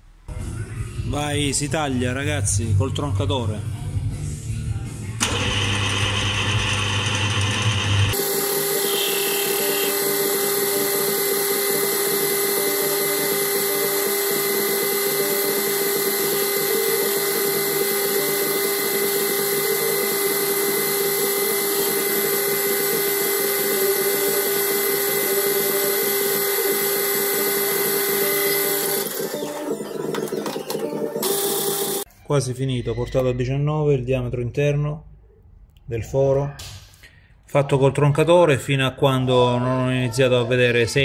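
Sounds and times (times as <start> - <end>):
metal lathe whining: 5.2 - 30.2, 31.2 - 32.1.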